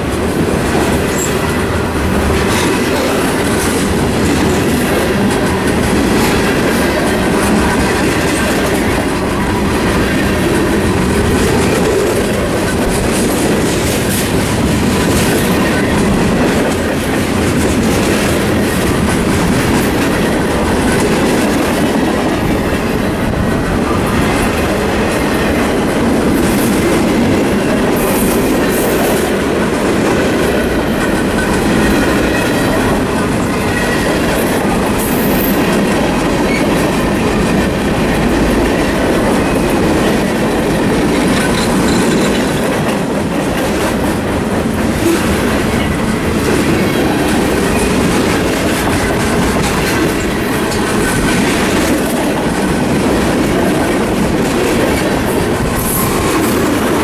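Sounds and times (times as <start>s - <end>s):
clickety-clack over rail joints: 0.0s - 57.0s
train wheels rumbling on rail: 0.0s - 57.0s.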